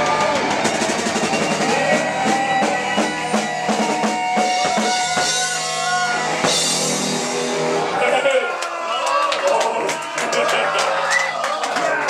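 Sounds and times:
drum kit hitting: 0.0s - 7.8s.

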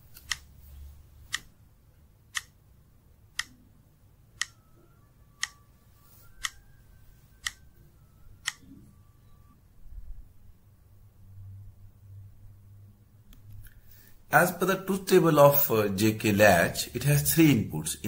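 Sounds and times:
clock ticking: 0.2s - 0.5s, 1.3s - 1.6s, 2.2s - 3.7s, 4.4s - 5.6s, 7.4s - 7.7s, 8.4s - 8.8s.

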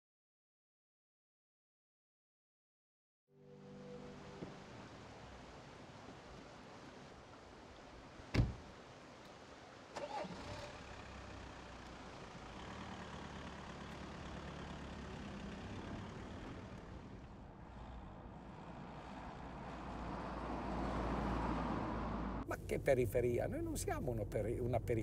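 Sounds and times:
car door slamming: 8.3s - 8.6s
car engine starting and running: 9.8s - 25.0s.

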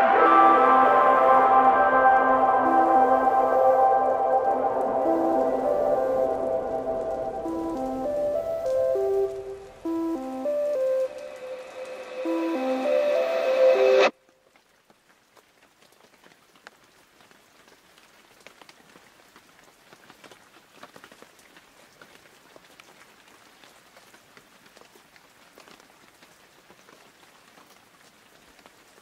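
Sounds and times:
soft hiss: 2.8s - 14.1s
crackling patter of small ticks: 5.0s - 11.4s, 14.3s - 29.0s.

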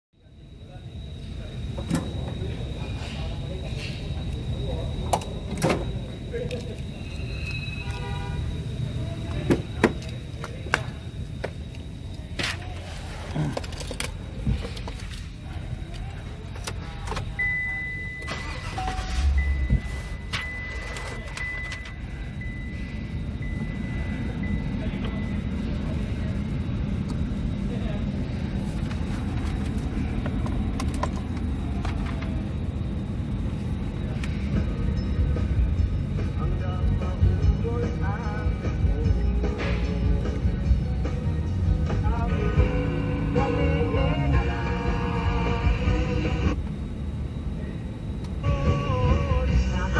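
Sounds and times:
car engine idling: 0.3s - 49.9s
steady low rumble: 0.3s - 49.9s.

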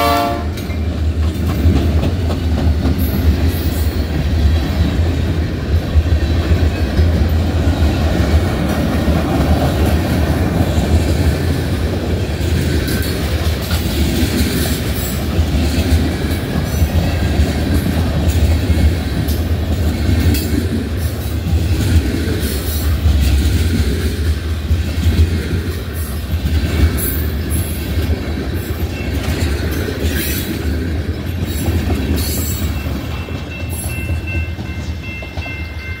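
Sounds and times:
freight train rumbling past: 0.0s - 36.0s
steel wheels clacking over rail joints: 0.3s - 35.8s.

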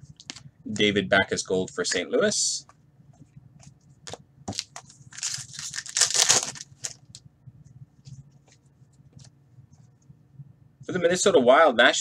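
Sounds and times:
cards being shuffled: 3.6s - 7.2s
plastic packaging crinkling: 4.5s - 7.2s.

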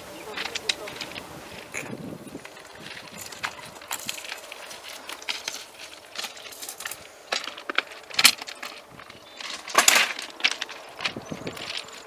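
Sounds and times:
wood clacking against metal: 0.4s - 12.0s.

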